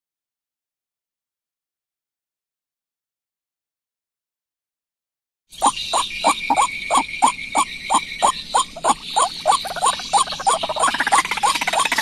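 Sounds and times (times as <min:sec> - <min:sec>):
waterhen calling: 0:05.6 - 0:12.0.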